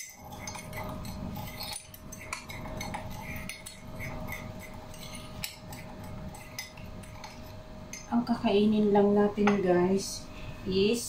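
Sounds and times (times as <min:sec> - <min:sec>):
cutlery clinking on dishes: 0:00.0 - 0:07.4
faint steady hum: 0:00.0 - 0:11.0.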